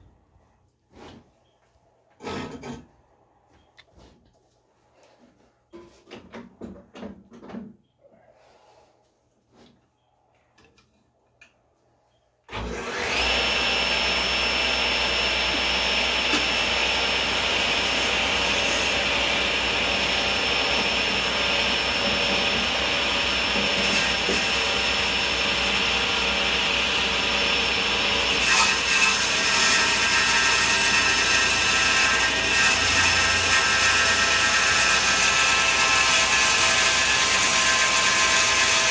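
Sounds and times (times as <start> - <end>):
blade sawing wood: 12.5 - 38.9
table saw motor whine: 12.5 - 38.9.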